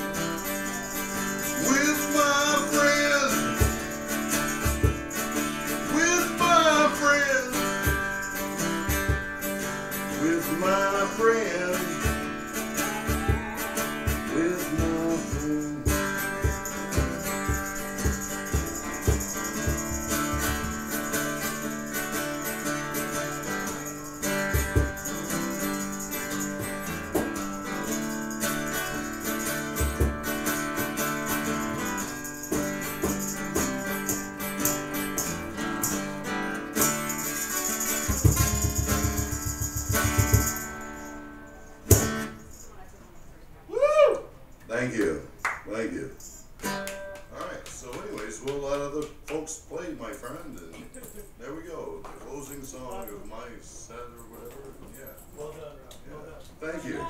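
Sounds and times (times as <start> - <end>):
live band music led by guitar: 0.0 - 42.4.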